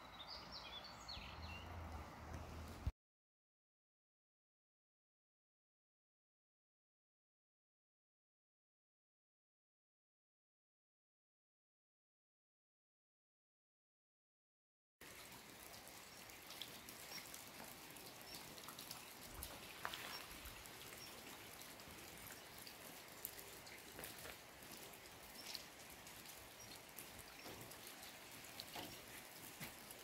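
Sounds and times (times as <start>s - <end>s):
light rain hiss: 15.0s - 30.0s
raindrops ticking: 15.0s - 30.0s.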